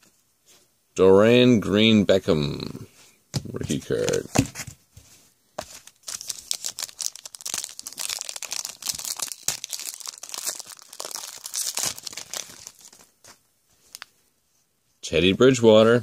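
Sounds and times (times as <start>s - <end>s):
foil wrapper crinkling: 5.6s - 14.1s.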